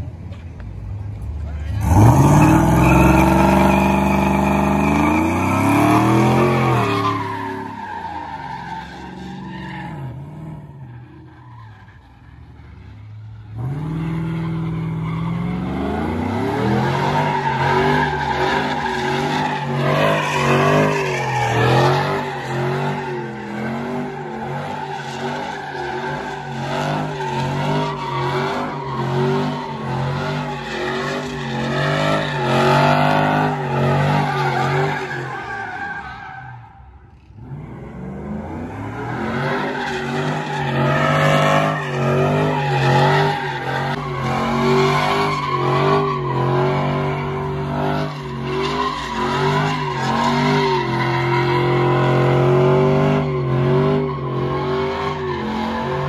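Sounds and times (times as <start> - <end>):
truck engine revving: 1.7 - 10.9, 13.5 - 35.6, 37.2 - 56.0
tyres squealing: 16.7 - 36.8.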